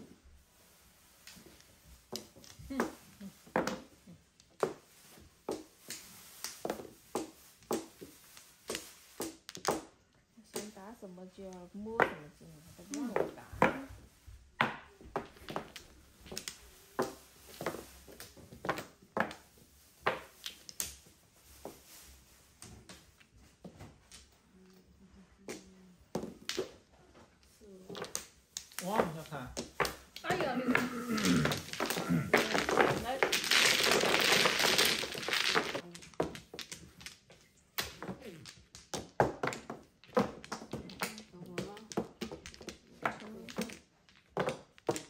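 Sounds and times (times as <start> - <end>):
mahjong tiles clacking: 12.0 - 21.1, 25.5 - 45.0.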